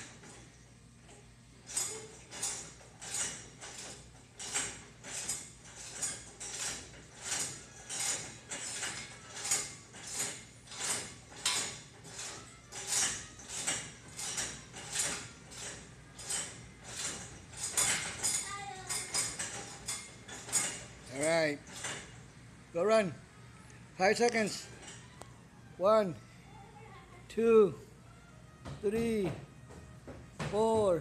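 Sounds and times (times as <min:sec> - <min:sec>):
play equipment squeaking and rattling: 0:01.6 - 0:22.2.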